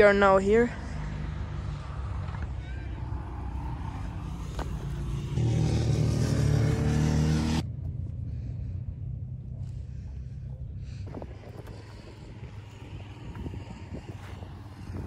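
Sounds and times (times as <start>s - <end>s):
vehicle engine accelerating past: 0.8s - 15.0s
wind noise: 10.8s - 15.0s.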